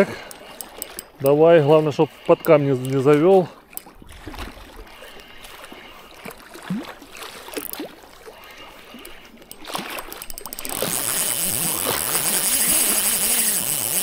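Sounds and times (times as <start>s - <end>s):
light clicks and ticks: 0.0s - 4.0s, 7.5s - 14.0s.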